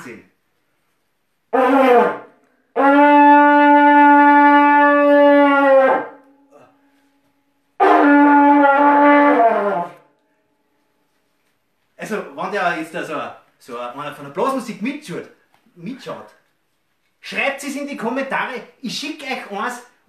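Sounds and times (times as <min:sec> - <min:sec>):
animal horn blasts: 0:01.5 - 0:06.7, 0:07.8 - 0:10.1.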